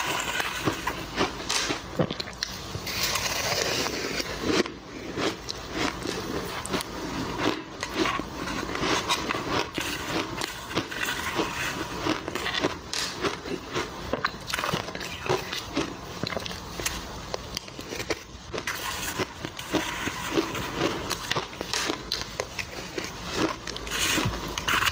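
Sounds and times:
metal spoon scraping ice: 0.0s - 1.8s, 2.8s - 4.6s, 5.8s - 13.1s, 17.9s - 22.0s, 22.6s - 24.9s
crushed ice being chewed: 0.0s - 24.9s.

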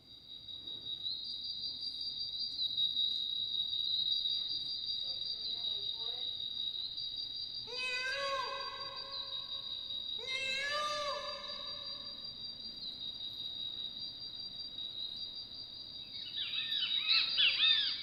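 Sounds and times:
crickets chirring: 0.0s - 18.0s
long pitched rising call: 7.8s - 9.5s.

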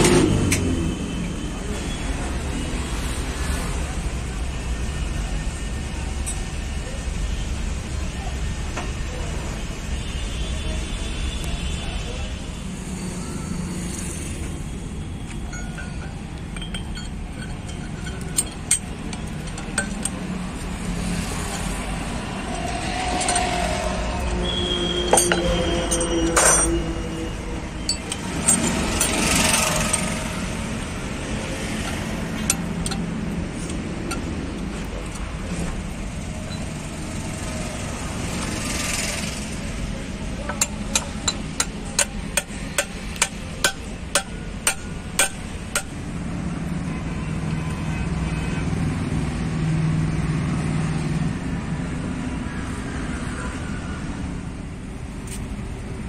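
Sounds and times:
metal gears clinking: 15.4s - 27.0s, 27.7s - 35.2s, 40.3s - 46.0s
sharp metallic taps: 31.8s - 35.2s, 40.4s - 46.0s.

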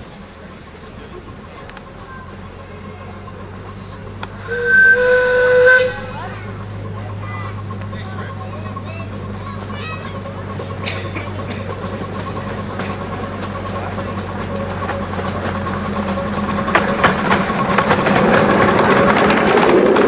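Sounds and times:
miniature train running: 0.0s - 20.0s
sharp clacks: 10.8s - 20.0s.

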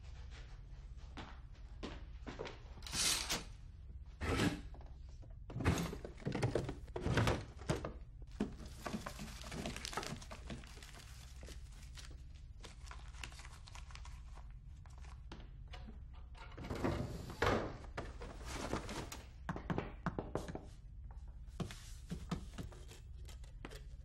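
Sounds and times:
clicks and rustling of objects: 6.0s - 16.6s.

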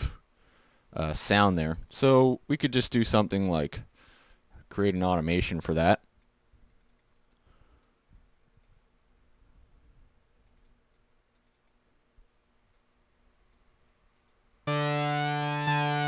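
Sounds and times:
sawtooth synthesizer note sweeping: 14.7s - 16.0s.

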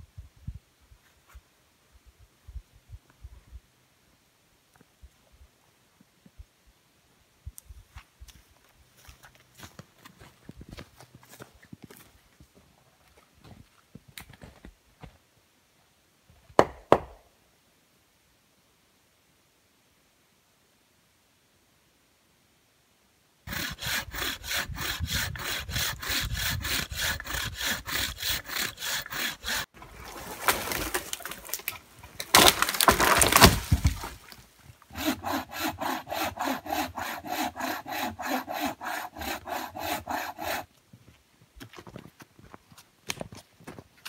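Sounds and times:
footsteps in snow: 7.9s - 15.2s
hand saw cutting log: 23.5s - 29.8s, 34.9s - 40.7s.

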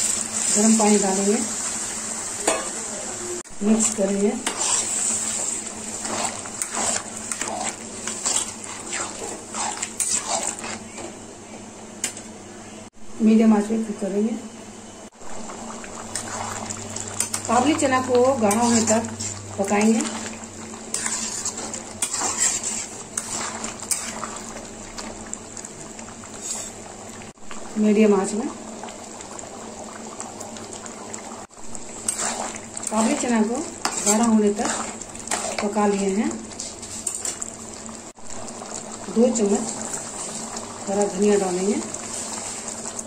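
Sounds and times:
curry simmering and bubbling: 3.4s - 11.8s, 15.1s - 43.0s
spatula stirring liquid sloshing: 3.7s - 11.1s, 15.6s - 27.0s, 31.8s - 37.8s, 38.5s - 43.0s.

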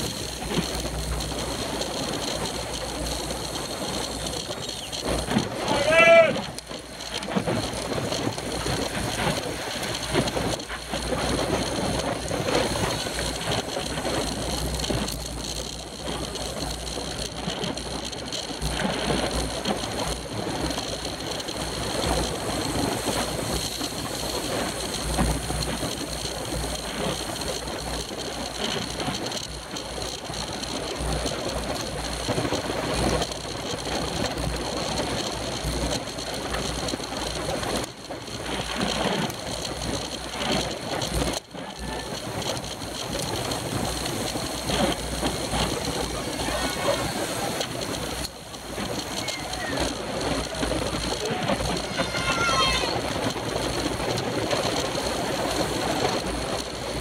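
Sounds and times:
bicycle tyres rolling: 0.0s - 57.0s.

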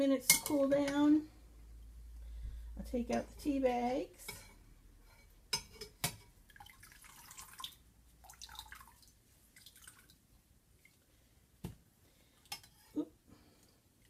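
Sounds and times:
tea dripping and trickling: 6.5s - 10.2s.

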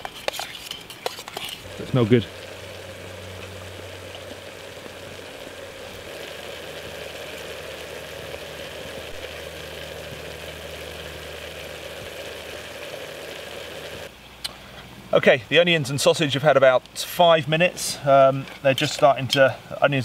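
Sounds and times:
food sizzling in oil: 0.0s - 14.1s
stove burning hum: 0.0s - 14.8s.

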